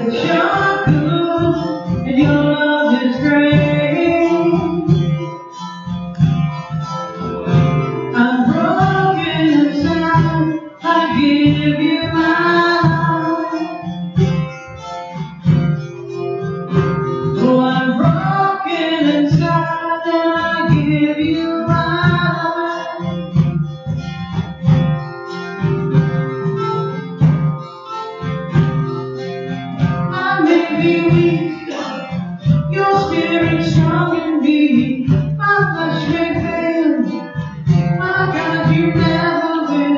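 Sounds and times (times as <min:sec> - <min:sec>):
person singing: 0:00.0 - 0:05.4, 0:08.1 - 0:13.9, 0:17.4 - 0:23.3, 0:30.1 - 0:39.9
acoustic guitar strumming: 0:00.0 - 0:39.9.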